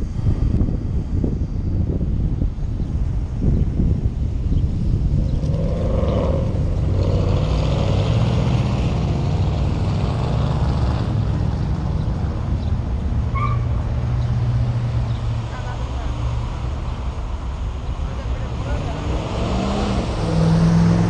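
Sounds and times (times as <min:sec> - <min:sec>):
road and wind noise: 0:00.0 - 0:21.0.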